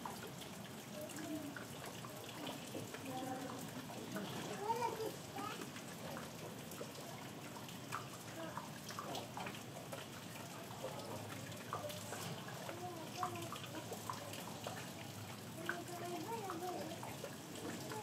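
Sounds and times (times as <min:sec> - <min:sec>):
rain falling: 0:00.0 - 0:18.0
water drips and splashes: 0:00.0 - 0:18.0
faint human voices: 0:00.9 - 0:05.6, 0:08.2 - 0:09.3, 0:10.3 - 0:18.0.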